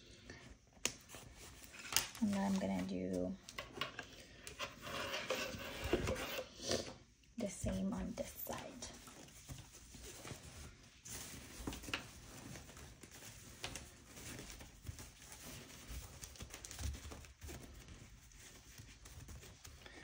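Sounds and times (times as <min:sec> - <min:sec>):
fabric rustling: 0:08.6 - 0:20.0.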